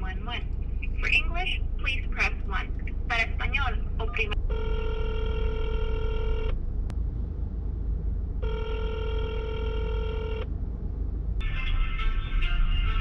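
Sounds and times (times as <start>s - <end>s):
telephone ringback tone: 4.5s - 6.5s, 8.4s - 10.4s.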